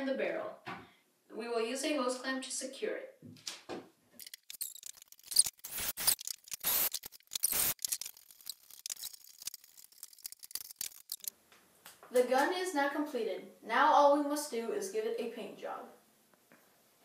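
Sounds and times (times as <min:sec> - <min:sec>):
cordless drill bursts: 0:05.6 - 0:07.8.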